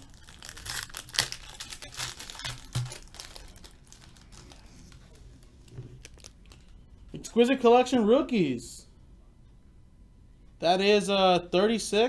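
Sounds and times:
foil wrapper tearing and crinkling: 0.0 - 5.2, 5.9 - 6.7.

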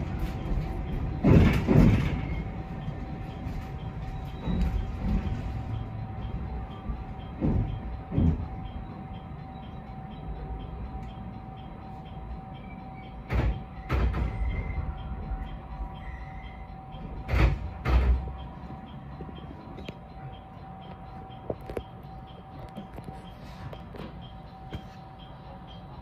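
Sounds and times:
train rumble and hum: 0.0 - 26.0
wheels knocking over rail joints: 0.2 - 2.5.

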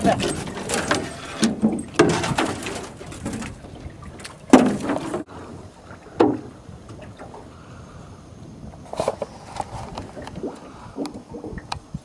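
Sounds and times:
ice scraping against metal boat: 0.0 - 3.6.

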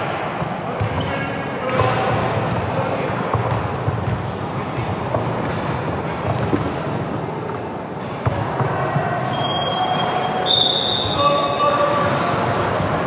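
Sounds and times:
gym background noise: 0.0 - 13.0
basketball bouncing on court: 0.2 - 7.1
short high squeaks: 9.3 - 11.7.

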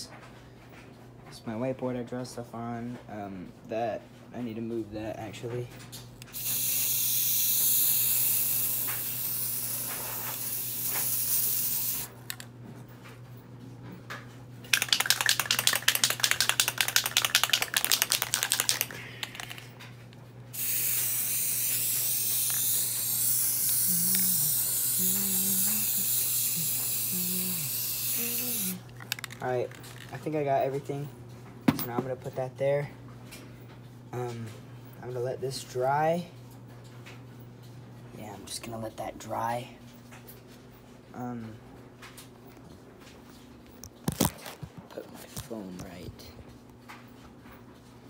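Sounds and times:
spray can hissing: 6.3 - 12.1, 14.7 - 19.6, 20.6 - 28.8
spray can rattling when shaken: 6.4 - 12.4, 14.7 - 19.7, 20.6 - 30.3.

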